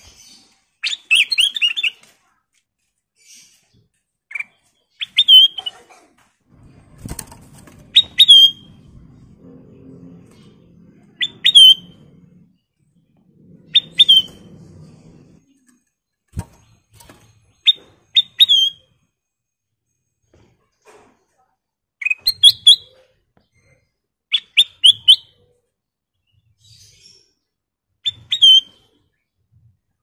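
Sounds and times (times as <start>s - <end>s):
bird rustling and fluttering: 6.5s - 9.3s.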